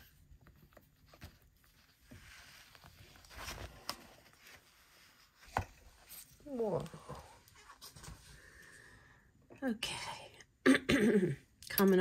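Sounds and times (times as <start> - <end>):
paper book rustling: 0.0 - 8.4.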